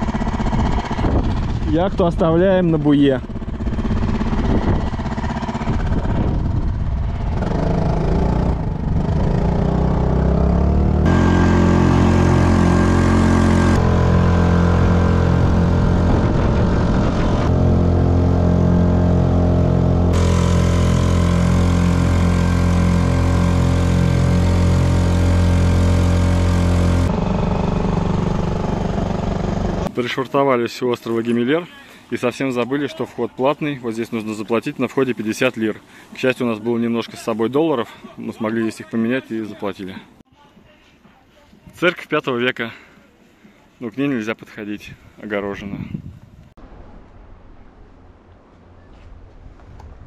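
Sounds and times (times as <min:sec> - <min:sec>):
outboard motor running: 0:00.0 - 0:29.9.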